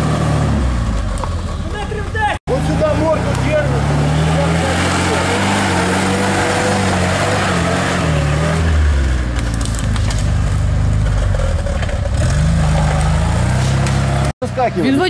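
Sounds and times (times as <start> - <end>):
off-road vehicle engine under load: 0.0 - 15.0
crackles: 9.3 - 14.3.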